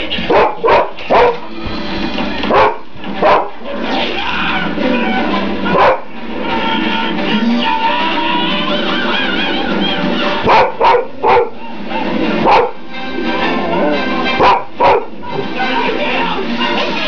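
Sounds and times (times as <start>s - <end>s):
film soundtrack music: 0.0s - 17.0s
dog barking: 0.2s - 1.5s, 2.5s - 3.6s, 5.7s - 6.1s, 10.4s - 12.8s, 14.4s - 15.2s.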